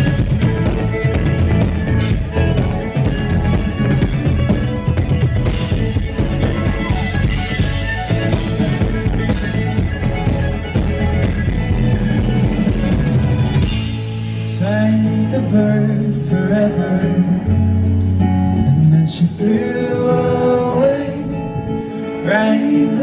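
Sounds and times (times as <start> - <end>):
wavering melody line: 0.0 - 15.3
drums: 0.0 - 19.5
held bass guitar notes: 0.0 - 23.0
live rock band playing: 0.0 - 23.0.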